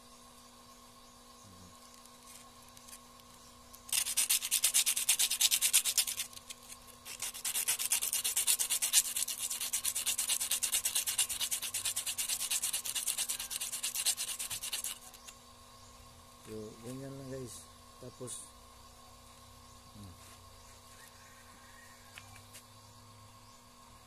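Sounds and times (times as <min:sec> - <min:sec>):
metal ring scraping on abrasive paper: 0:01.9 - 0:15.3.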